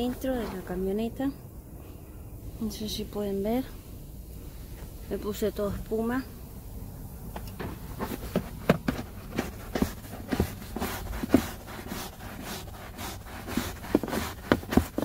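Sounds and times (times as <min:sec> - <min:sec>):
brush scrubbing carpet: 0:07.6 - 0:15.0.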